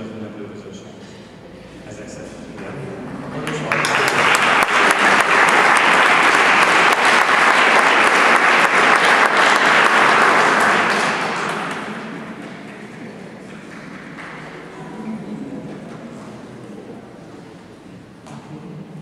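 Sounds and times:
audience applauding: 3.2 - 15.2.

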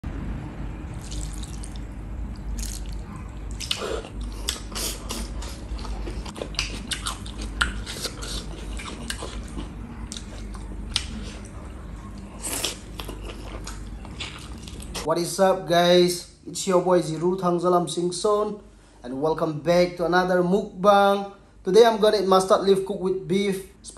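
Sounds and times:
gravy pouring and dripping: 1.0 - 3.6.

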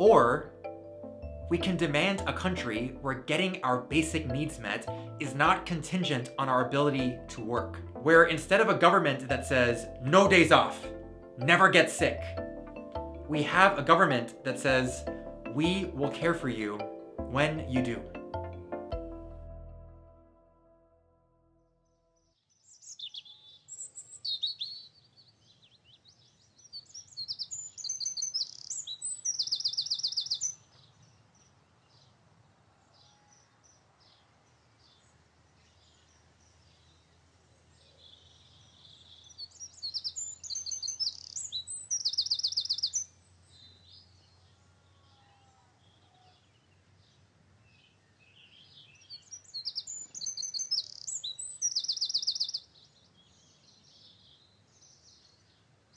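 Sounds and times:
bird chirping and trilling: 22.2 - 32.1, 37.7 - 55.7.

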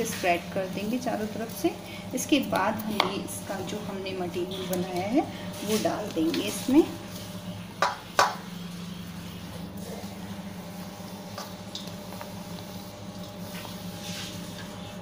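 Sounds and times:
steady low hum: 0.0 - 15.0
crumbly mixture scooped by hand: 9.1 - 15.0.

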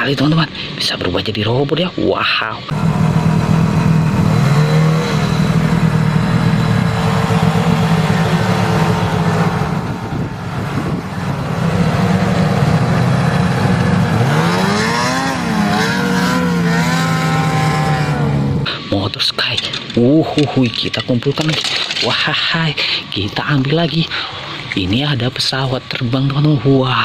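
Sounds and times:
snowmobile engine revving: 2.7 - 18.9.

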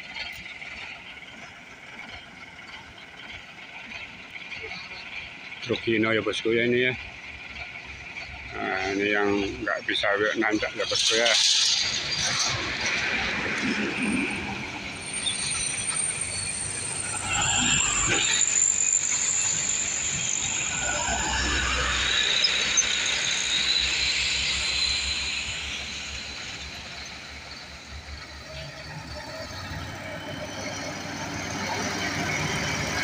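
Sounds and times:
heavy trucks engine rumble: 0.0 - 33.0
high-pitched whine and hiss: 8.5 - 32.5.

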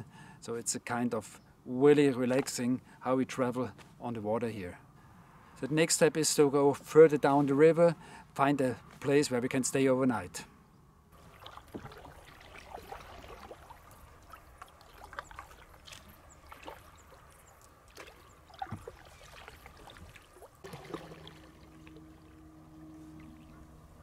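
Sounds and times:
paddle splashes and drips: 11.2 - 24.0
faint low hum: 20.6 - 24.0.

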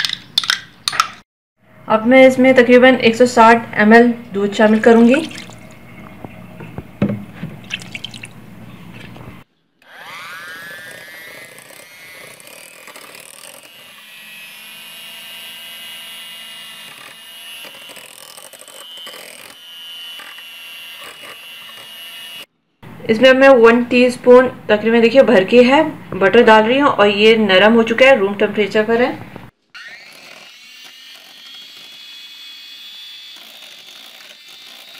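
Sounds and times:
milk splashing: 4.5 - 5.8, 7.6 - 9.3
electric hand mixer whining: 9.8 - 22.5, 29.8 - 34.9.

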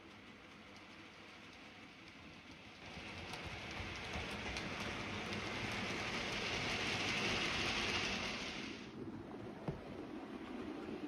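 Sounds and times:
model train running on track: 0.0 - 11.0.

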